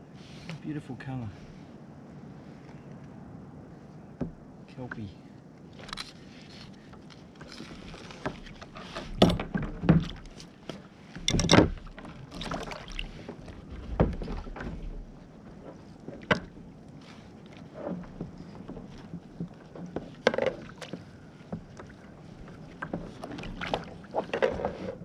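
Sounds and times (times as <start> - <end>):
thumps on a kayak: 8.2 - 16.6, 17.8 - 25.0.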